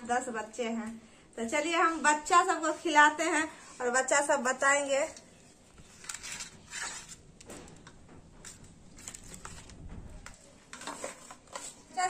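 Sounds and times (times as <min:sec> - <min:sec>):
knife scraping steel plate: 0:06.0 - 0:07.2.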